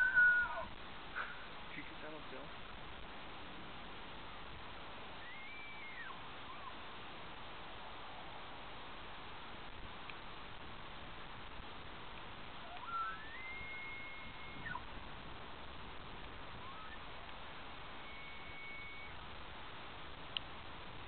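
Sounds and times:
elk bugling: 0.0 - 1.3, 5.2 - 6.8, 12.6 - 14.9, 16.0 - 19.2.

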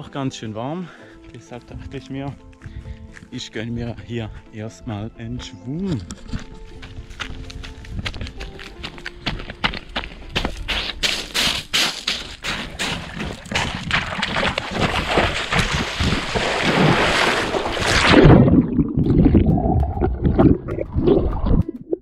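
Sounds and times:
running footsteps: 1.1 - 4.5, 5.4 - 17.4
splash into water: 12.9 - 19.3
underwater bubbling: 14.0 - 22.0.

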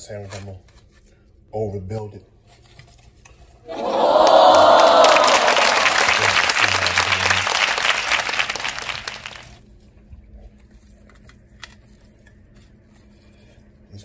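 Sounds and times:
crowd applause and cheering: 3.7 - 9.6.

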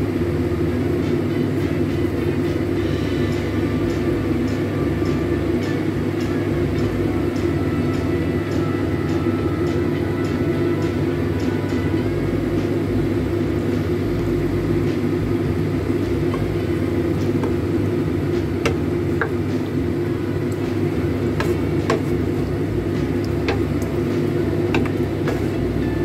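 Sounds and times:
ribs bubbling in sauce: 12.7 - 26.0.

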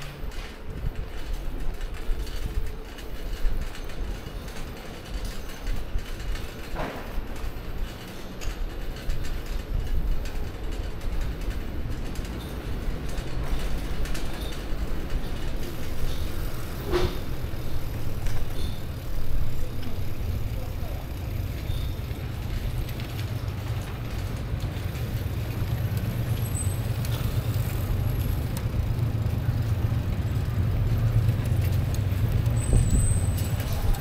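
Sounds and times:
bicycle mechanism clicking and rattling: 0.0 - 34.0
bicycle rolling over brick paving: 0.0 - 34.0
wind rumble on microphone: 0.2 - 7.9, 28.8 - 34.0.

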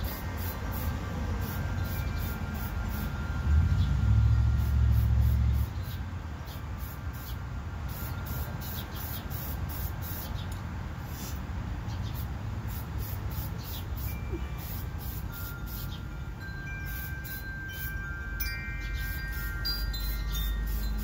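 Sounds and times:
spray paint can hissing: 0.0 - 3.1, 4.6 - 6.0, 6.8 - 11.4, 12.1 - 16.0, 16.8 - 18.0, 19.0 - 21.0.

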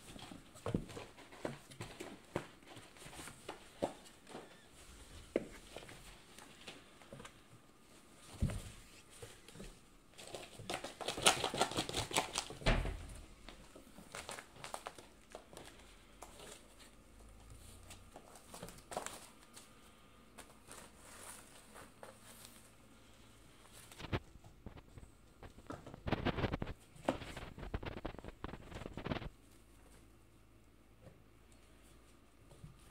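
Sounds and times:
cats scratching cardboard: 0.0 - 12.6, 13.5 - 30.2.

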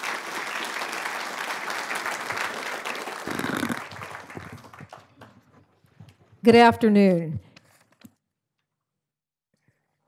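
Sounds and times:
audience applauding: 0.0 - 5.7.

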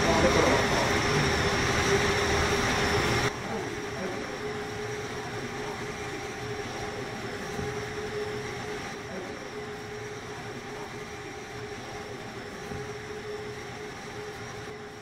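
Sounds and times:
faint high whine: 0.0 - 15.0.

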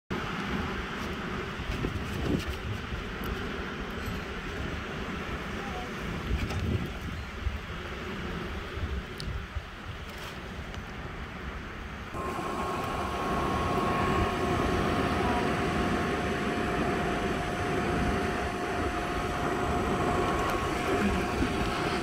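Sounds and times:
furnace blower motor running: 12.1 - 22.0
two-note whine: 12.2 - 22.0.

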